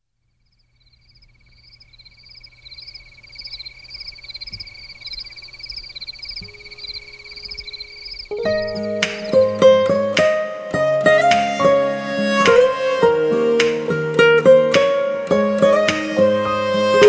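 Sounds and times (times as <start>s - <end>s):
insects trilling: 0.1s - 9.6s
high insect chirps: 0.1s - 9.7s.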